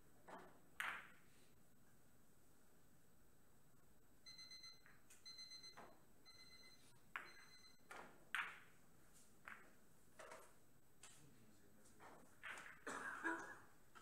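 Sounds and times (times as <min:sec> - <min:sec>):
electronic ringtone beeping: 0:04.3 - 0:07.9
billiard balls clicking together: 0:07.2 - 0:08.8, 0:09.4 - 0:11.2, 0:12.3 - 0:12.9.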